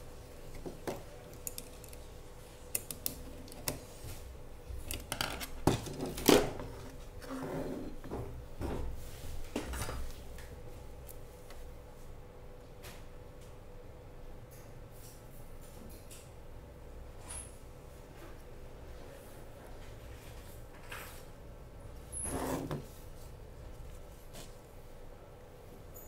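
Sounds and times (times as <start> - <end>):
circuit board and tools clicking: 1.3 - 2.0, 2.7 - 3.8.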